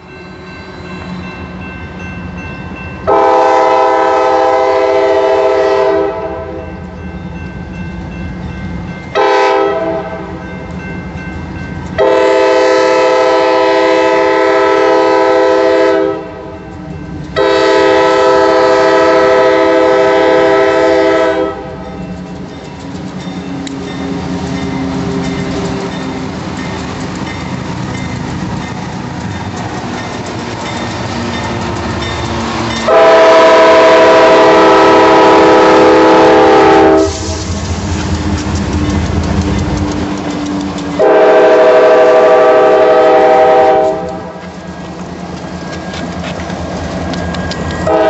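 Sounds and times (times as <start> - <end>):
locomotive air horn blasts: 3.1 - 6.6, 9.2 - 10.3, 12.0 - 16.6, 17.4 - 21.9, 32.8 - 37.5, 41.0 - 44.4.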